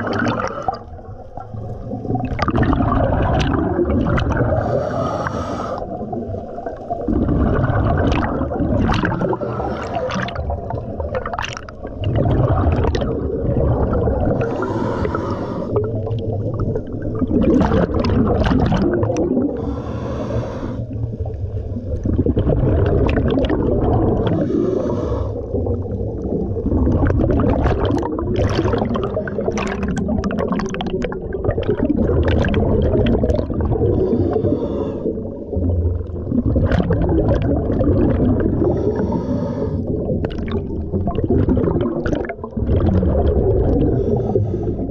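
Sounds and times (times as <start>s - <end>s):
exhaled bubbles gurgling: 0.0s - 44.9s
regulator inhale hiss: 4.6s - 6.0s, 14.4s - 15.9s, 19.6s - 21.0s, 24.3s - 25.4s, 33.9s - 35.2s, 38.7s - 39.9s, 44.0s - 44.9s.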